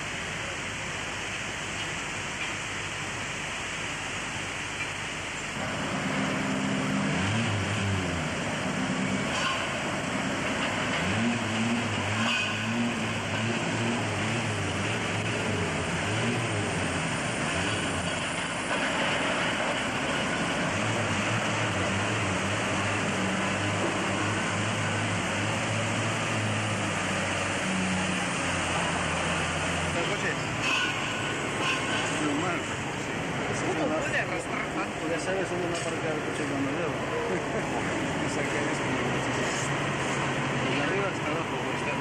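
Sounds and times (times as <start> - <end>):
vehicle engine running: 5.6 - 33.1.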